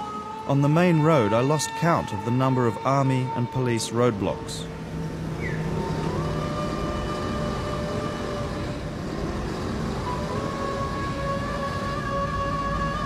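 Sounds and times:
car road and engine noise: 4.7s - 11.9s.

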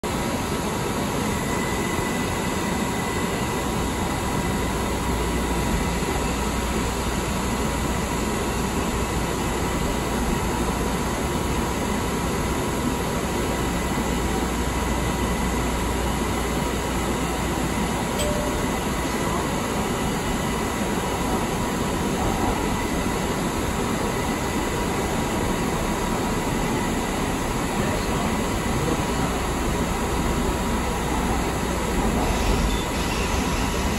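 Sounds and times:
rumble of wheels on rail: 0.0s - 33.9s
faint high whine: 13.8s - 21.2s.

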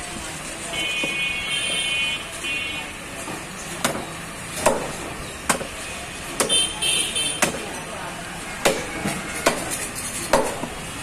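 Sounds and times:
knife chopping on wooden block: 7.4s - 7.7s, 8.6s - 10.8s.

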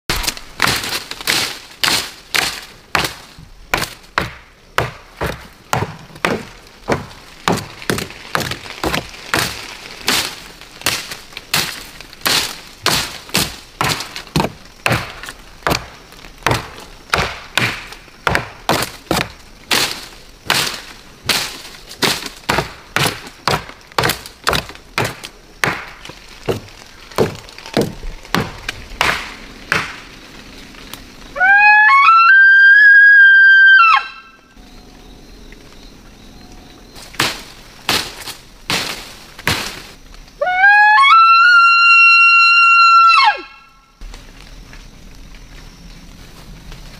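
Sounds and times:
sharp woody cracks and knocks: 0.1s - 31.0s, 37.0s - 40.3s.

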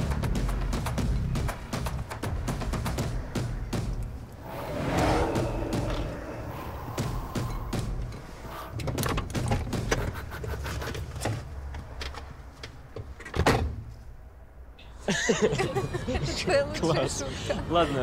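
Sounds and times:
knocks and rustles of movement: 0.0s - 14.3s.

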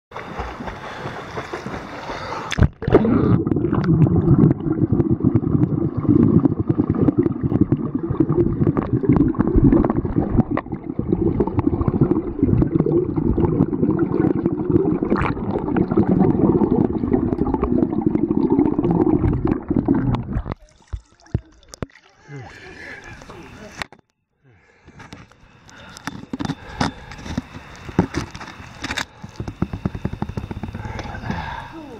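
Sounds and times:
above-water hiss: 0.2s - 2.6s, 22.1s - 23.8s, 24.6s - 31.9s
muffled underwater rumble and gurgling: 0.5s - 20.7s, 25.2s - 31.9s
water and bubbles clicking: 2.5s - 22.1s, 26.0s - 31.4s.

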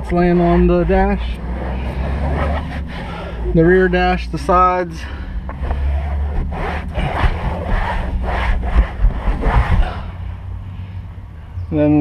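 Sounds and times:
towel rubbing swishes: 5.9s - 10.1s.

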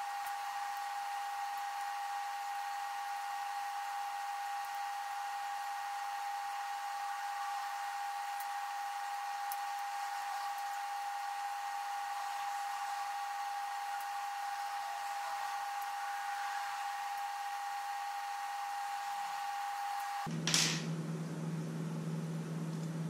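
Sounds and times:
small electric motor whining: 0.0s - 20.3s.

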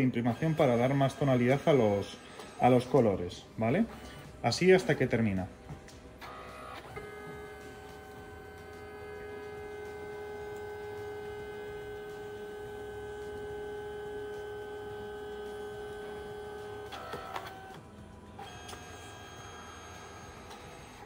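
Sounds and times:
printer motor whining: 0.0s - 5.5s, 6.2s - 21.0s
higher motor tone: 6.2s - 20.7s.

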